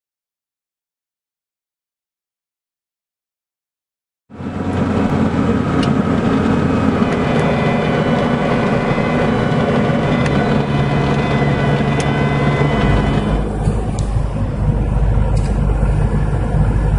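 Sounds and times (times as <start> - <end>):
aircraft piston engine and propeller: 4.3 - 16.9.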